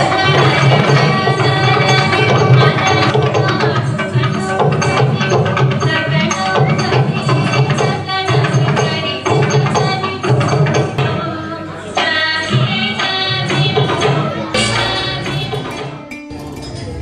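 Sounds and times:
regular drum beat: 13.5 - 16.8.

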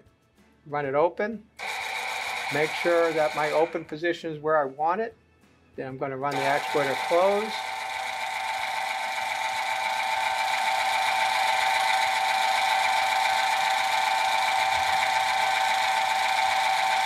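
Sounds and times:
valve actuator motor whine: 1.6 - 3.8, 6.3 - 17.0.

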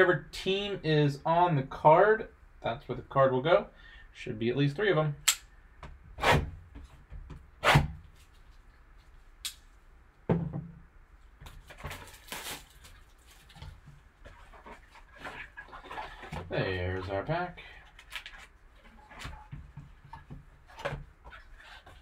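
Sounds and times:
plastic wrap snapping and crackling: 11.4 - 13.7
plastic wrap crinkling: 11.4 - 16.2, 17.8 - 19.3.

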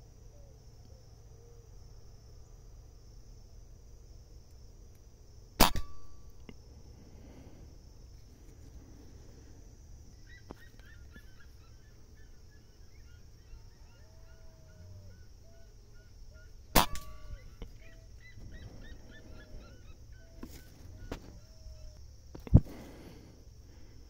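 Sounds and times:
air rifle shot: 5.6 - 6.1, 16.8 - 17.4
birds chirping: 10.0 - 23.2.

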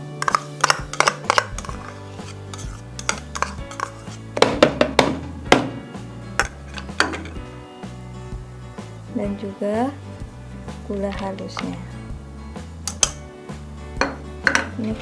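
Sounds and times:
background music: 0.0 - 15.0
metal spoon scraping a bowl: 0.1 - 4.4, 6.4 - 7.4.

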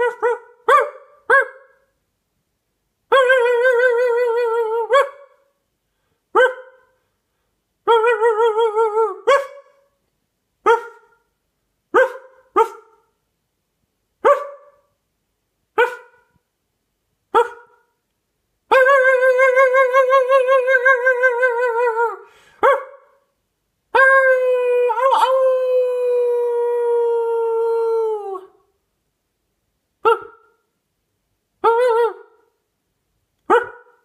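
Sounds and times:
dog barking: 0.0 - 1.9, 4.9 - 5.5, 6.3 - 7.0, 9.2 - 10.0, 10.6 - 11.3, 11.9 - 13.1, 14.2 - 14.9, 15.8 - 16.4, 17.3 - 18.0, 22.6 - 23.2, 30.0 - 30.6, 33.5 - 34.0
dog crying with wavering pitch: 3.1 - 5.4, 7.9 - 9.8, 18.7 - 23.0, 24.0 - 28.6, 31.6 - 32.4.

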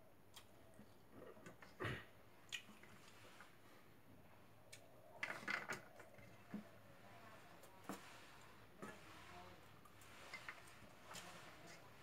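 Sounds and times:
crackly chewing: 0.2 - 1.8, 2.4 - 3.3.

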